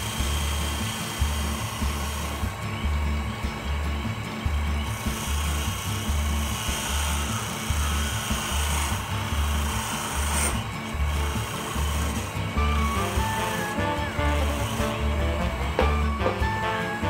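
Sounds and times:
wood lathe tool scraping: 0.0s - 17.0s
background music with bass beat: 8.0s - 17.0s.

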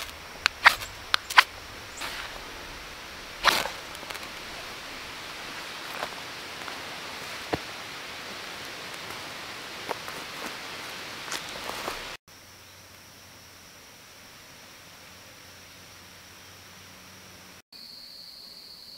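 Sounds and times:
knife shaving wooden stick: 0.0s - 2.4s
rustling scrape: 0.0s - 6.2s
outdoor hiss: 0.0s - 18.9s.

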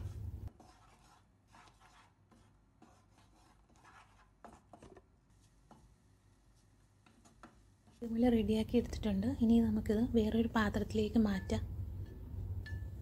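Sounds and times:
spatula scraping frying pan: 0.0s - 4.8s.

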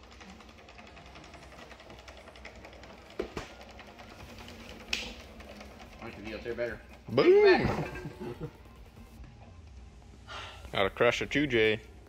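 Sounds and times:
faint rapid mechanical ticking: 0.0s - 7.6s.

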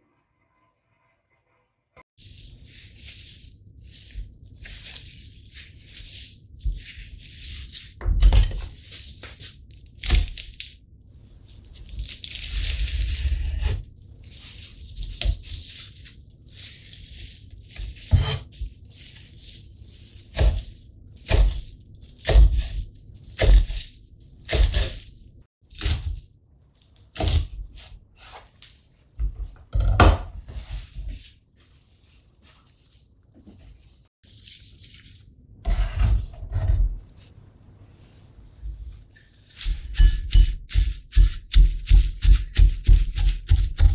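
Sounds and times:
leaves rustling: 2.2s - 8.0s, 11.4s - 13.3s, 14.2s - 23.9s, 30.7s - 35.2s
knife cutting leaves on board: 11.7s - 26.2s, 27.0s - 28.6s, 39.2s - 43.9s.

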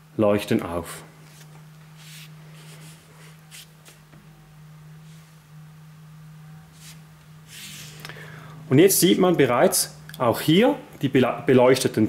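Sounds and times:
steady low hum: 0.0s - 12.0s
faint hissy rustles: 1.2s - 4.0s, 6.7s - 8.0s.

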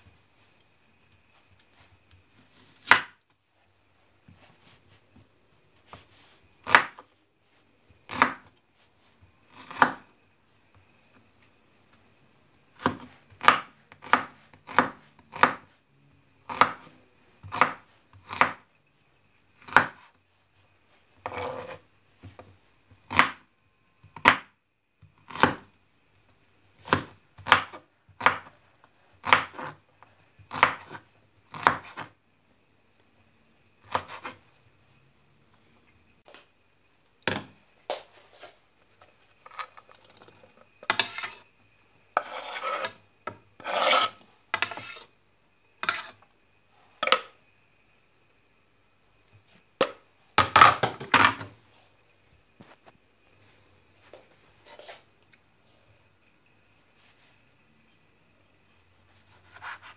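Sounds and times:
knife chopping on wooden board: 6.6s - 7.0s
knife blade scraping board: 21.3s - 21.8s, 40.9s - 41.4s, 42.2s - 43.0s, 43.6s - 45.1s, 45.8s - 46.2s.

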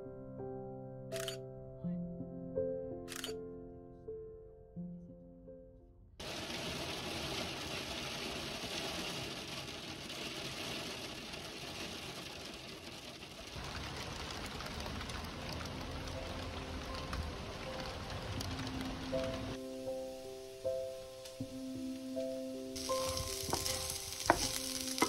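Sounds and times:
heavy rain falling: 6.2s - 19.9s, 22.8s - 25.0s.

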